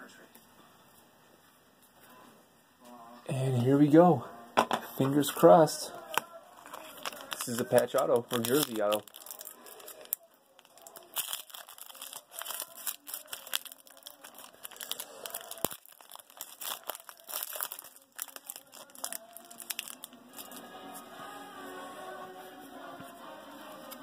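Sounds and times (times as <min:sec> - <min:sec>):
foil pack crinkling and tearing: 0:06.1 - 0:20.6.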